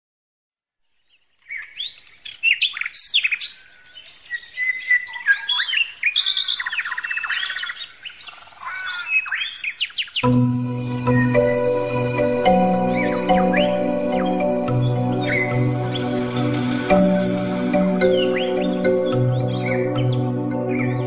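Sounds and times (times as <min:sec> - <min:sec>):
songbirds chirping and trilling: 0:00.9 - 0:21.0
music: 0:10.2 - 0:21.0.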